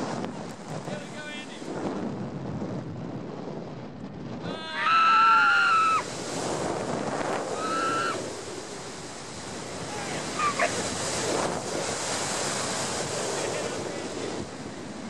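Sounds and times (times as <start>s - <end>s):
wind rushing on microphone: 0.0s - 15.0s
person screaming: 4.4s - 6.0s, 7.6s - 8.2s.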